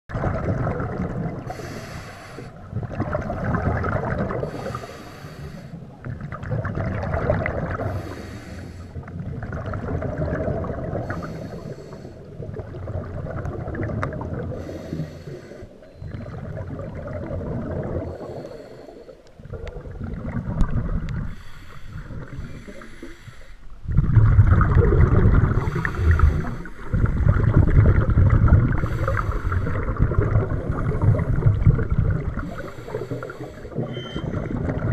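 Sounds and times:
exhaled bubbles: 0:00.1 - 0:34.9
diver breathing through regulator: 0:01.4 - 0:02.6, 0:04.3 - 0:05.9, 0:07.8 - 0:09.1, 0:10.9 - 0:12.3, 0:14.4 - 0:15.9, 0:17.9 - 0:19.4, 0:21.1 - 0:23.8, 0:25.4 - 0:27.3, 0:28.7 - 0:31.5, 0:32.3 - 0:34.7.

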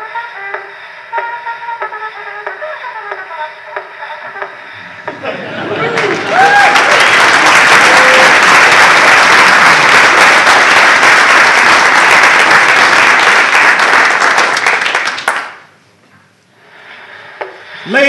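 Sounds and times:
audience applauding: 0:05.1 - 0:15.7.

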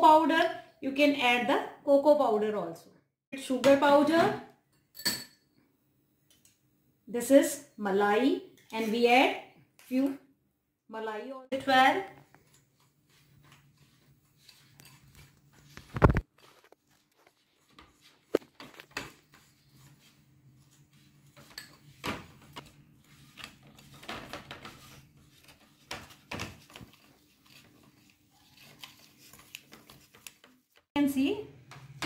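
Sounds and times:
spoon scraping glass bowl: 0:13.1 - 0:15.7, 0:21.3 - 0:21.9.

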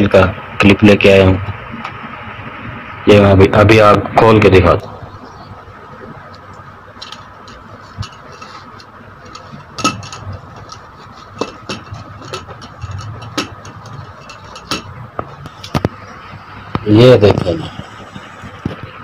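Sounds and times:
faint steady hum: 0:00.0 - 0:19.0
tripod clicks and knocks: 0:07.0 - 0:16.0.

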